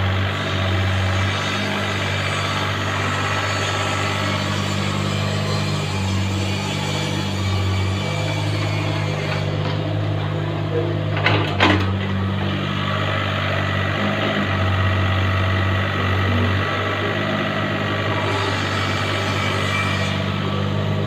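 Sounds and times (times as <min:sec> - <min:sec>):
excavator diesel engine running: 0:00.0 - 0:04.3, 0:09.5 - 0:19.4, 0:20.2 - 0:21.0.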